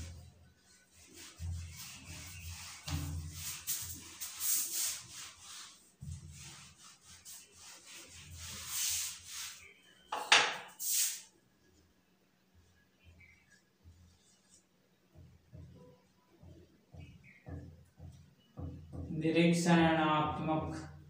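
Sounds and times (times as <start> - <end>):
duster rubbing on whiteboard: 0.0 - 11.3.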